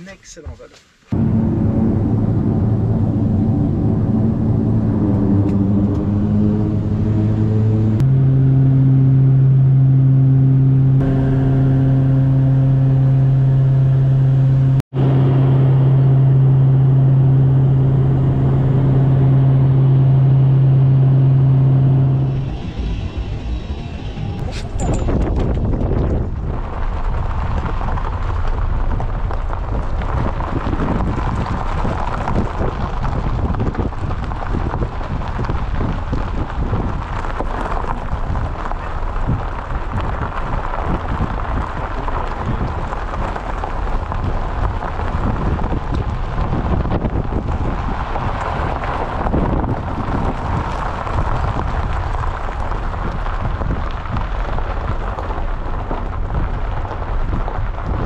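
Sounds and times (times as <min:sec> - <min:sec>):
wind rumbling on microphone: 0:01.1 - 0:58.0
tyres crunching on gravel: 0:21.6 - 0:58.0.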